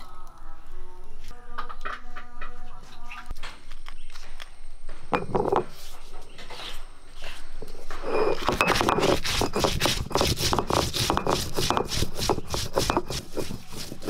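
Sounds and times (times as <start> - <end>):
stone roller grinding chillies: 6.5 - 14.0.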